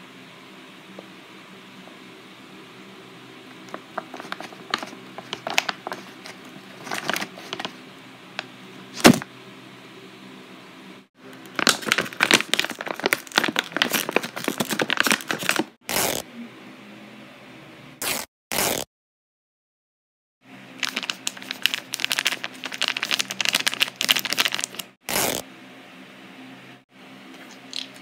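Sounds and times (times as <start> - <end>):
plastic pouch crinkling: 3.7 - 7.8, 11.5 - 15.7, 20.8 - 25.4.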